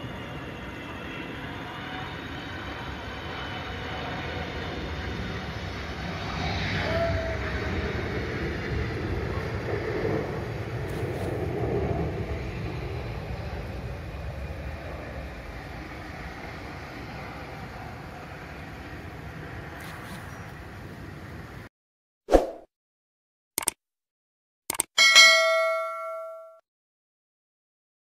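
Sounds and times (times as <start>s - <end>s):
jet plane passing overhead: 0.0s - 21.7s.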